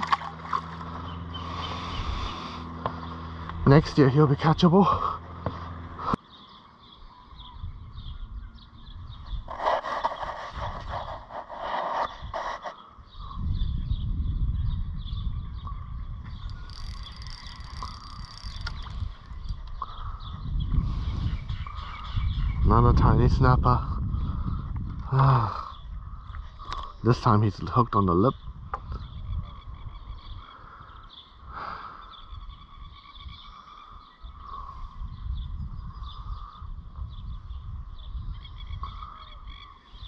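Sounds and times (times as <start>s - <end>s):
fishing reel ticking: 16.4s - 19.0s.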